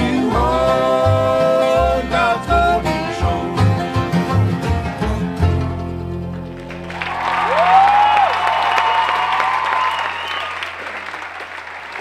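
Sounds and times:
audience applauding: 0:06.5 - 0:12.0
audience cheer: 0:06.6 - 0:12.0.

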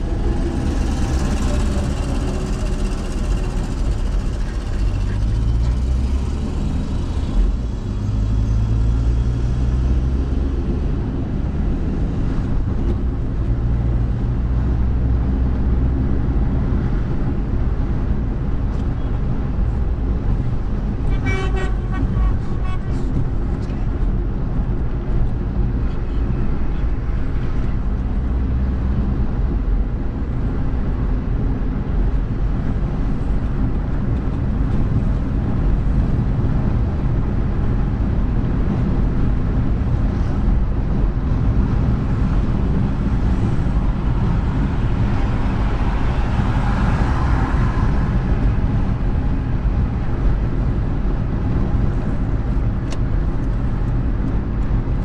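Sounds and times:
hissy road noise: 0:00.0 - 0:09.9, 0:34.5 - 0:50.9
car engine and tyre rumble: 0:00.0 - 0:55.0.

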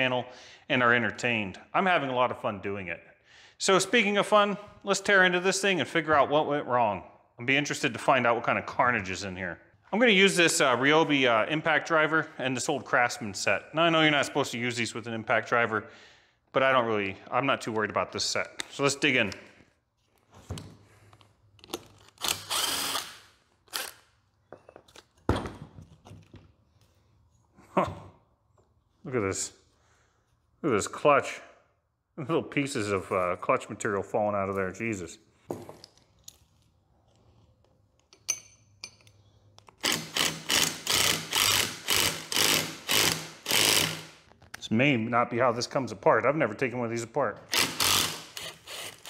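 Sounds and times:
impact driver running: 0:39.8 - 0:44.1, 0:47.5 - 0:49.0.

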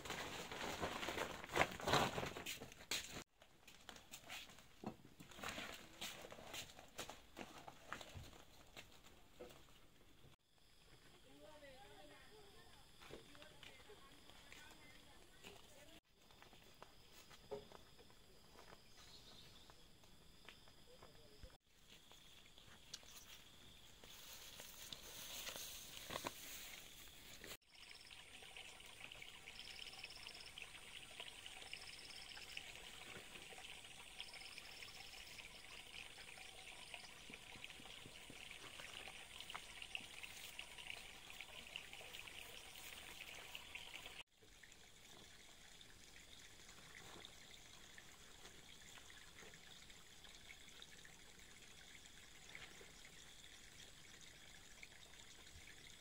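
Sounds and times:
running water trickle: 0:20.9 - 0:56.0.

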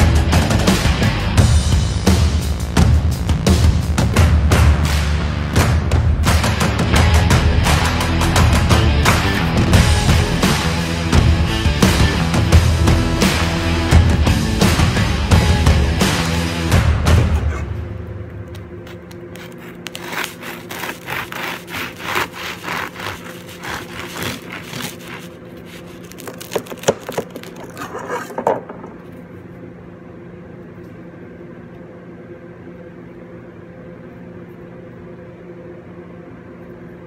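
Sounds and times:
machine hum: 0:00.0 - 0:37.0
crust crackling: 0:18.5 - 0:28.4
bread knife sawing crust: 0:19.4 - 0:26.4.

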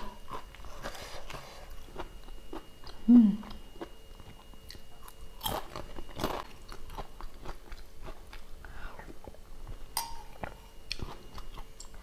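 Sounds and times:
chewing crisp cracker: 0:00.0 - 0:12.0
person humming: 0:03.0 - 0:03.6.

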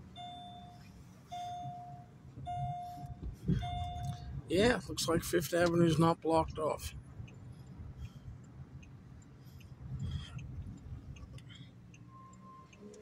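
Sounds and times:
car engine and road rumble: 0:00.0 - 0:13.0
turn signal clicking: 0:00.0 - 0:13.0
short steady beep: 0:00.1 - 0:04.3, 0:11.8 - 0:13.0.

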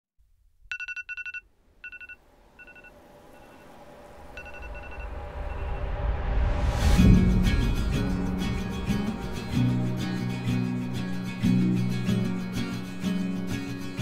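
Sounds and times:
mobile phone ringing: 0:00.7 - 0:03.7, 0:04.4 - 0:05.9
low drone: 0:02.3 - 0:13.9
music: 0:04.4 - 0:14.0.

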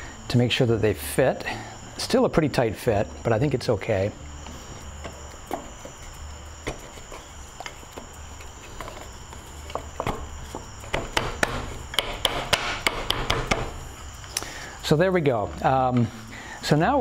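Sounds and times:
dowels rubbing in holes: 0:04.5 - 0:12.0
wooden knocks: 0:09.7 - 0:13.8.

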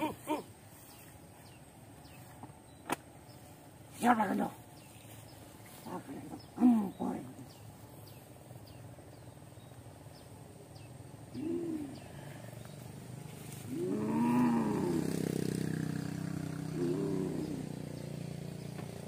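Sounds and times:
low steady hum: 0:00.0 - 0:15.5
tiger-like roars: 0:13.6 - 0:18.1.

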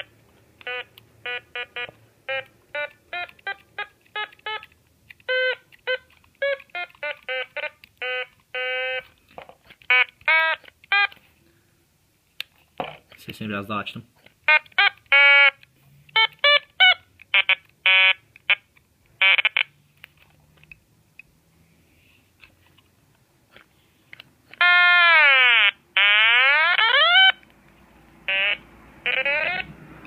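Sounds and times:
otamatone buzzy notes: 0:28.3 - 0:29.9.

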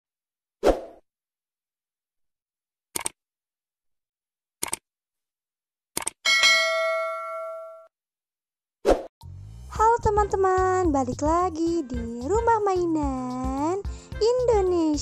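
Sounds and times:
bell chime: 0:06.3 - 0:07.9.

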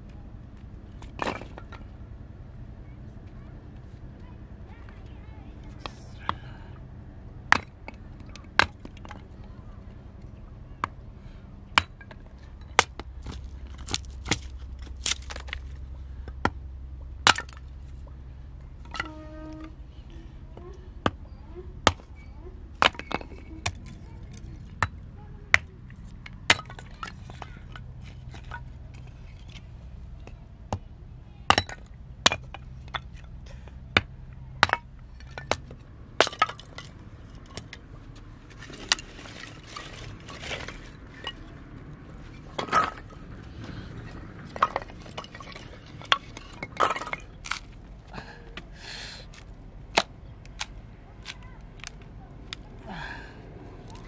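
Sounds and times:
hatchet chopping wood: 0:12.8 - 0:15.6, 0:17.3 - 0:17.6, 0:21.9 - 0:22.1.

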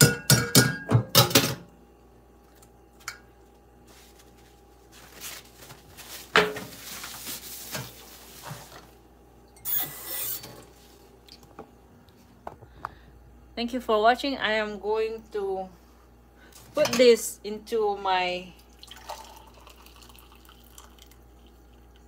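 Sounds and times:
dishes clattering in sink: 0:00.0 - 0:01.7, 0:06.3 - 0:06.8
towel rustling: 0:03.8 - 0:09.0.

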